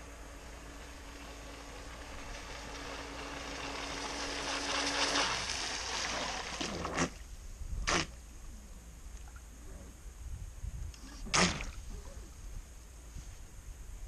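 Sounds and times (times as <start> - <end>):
electric motor whine: 0.0 - 6.6
water splashing: 0.0 - 7.3, 11.0 - 11.9.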